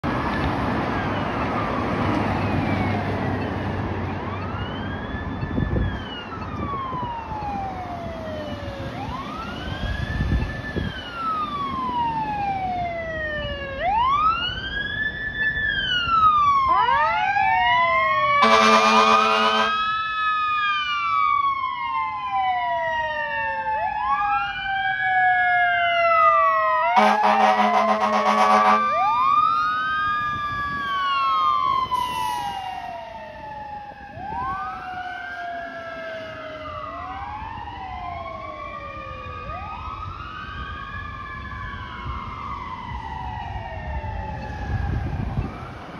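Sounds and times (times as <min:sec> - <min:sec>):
fire engine siren wailing: 0:00.0 - 0:45.9
air horn blast: 0:18.4 - 0:19.8, 0:27.0 - 0:29.0.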